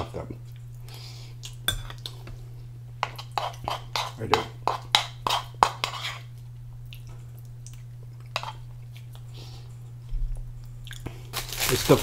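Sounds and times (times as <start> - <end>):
steady low hum: 0.0 - 12.0
person chewing food: 6.2 - 11.4.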